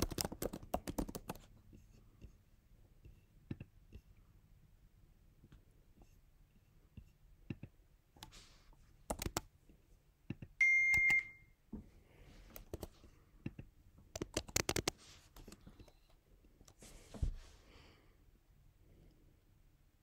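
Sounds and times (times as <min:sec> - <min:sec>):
electronic beep: 0:10.6 - 0:11.5.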